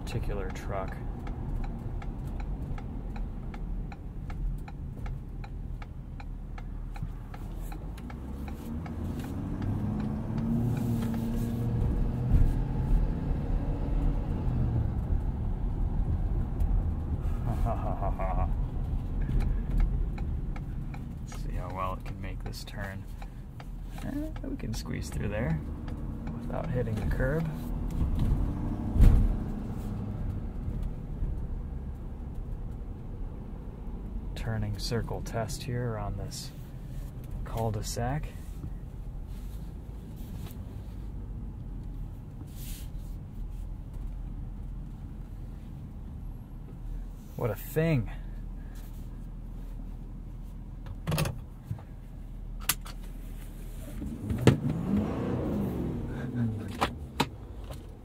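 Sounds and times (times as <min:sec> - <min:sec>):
diesel engine drone inside cab: 0:00.0 - 0:58.0
thump: 0:29.0 - 0:29.3.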